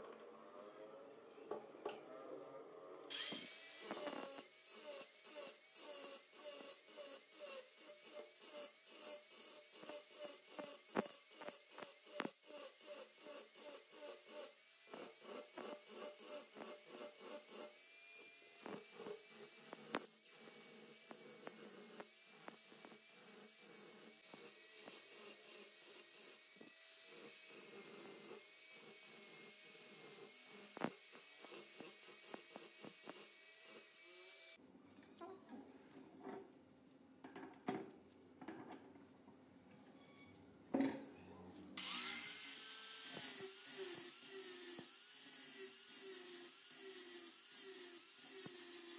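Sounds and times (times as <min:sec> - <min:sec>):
angle grinder grinding steel: 0:03.1 - 0:34.6, 0:41.8 - 0:48.9.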